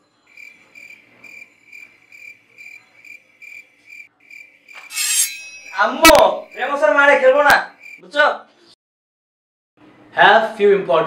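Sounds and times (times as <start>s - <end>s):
cricket chirping: 0.3s - 6.8s, 7.7s - 8.0s.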